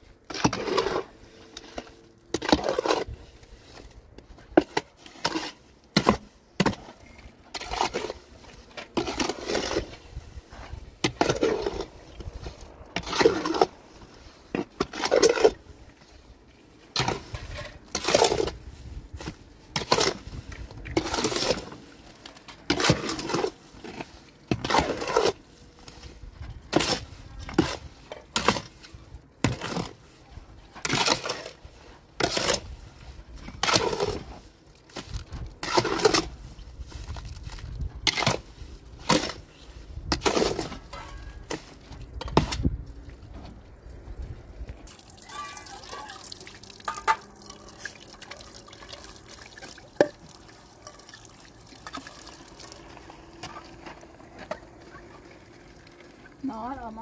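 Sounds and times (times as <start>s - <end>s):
shovel scraping wet mortar: 0.2s - 42.8s, 44.9s - 54.7s.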